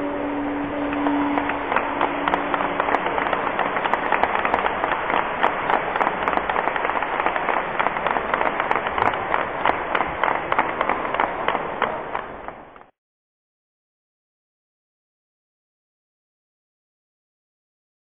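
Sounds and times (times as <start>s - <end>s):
audience applauding: 0.2s - 12.9s.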